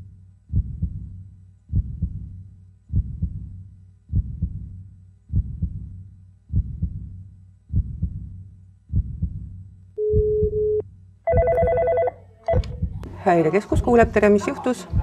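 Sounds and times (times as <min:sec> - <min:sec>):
heartbeat double thumps: 0:00.5 - 0:11.9, 0:12.5 - 0:13.2
phone dial tone: 0:10.0 - 0:12.8.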